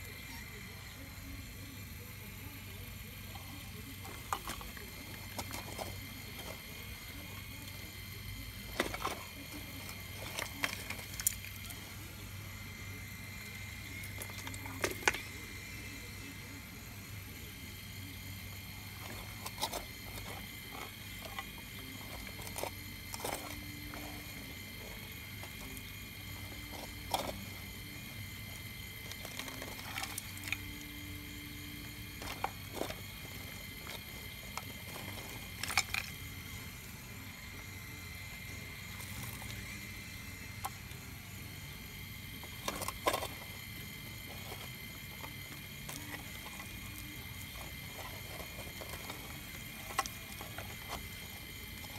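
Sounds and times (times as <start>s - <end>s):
high-pitched hum: 0.0s - 51.9s
stones clicking and knocking: 8.6s - 11.8s, 41.8s - 51.9s.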